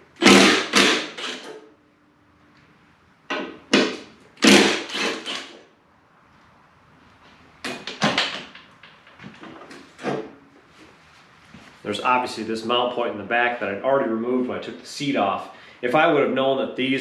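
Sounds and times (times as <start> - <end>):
cordless power tool bursts: 0.2 - 1.6, 3.8 - 5.6.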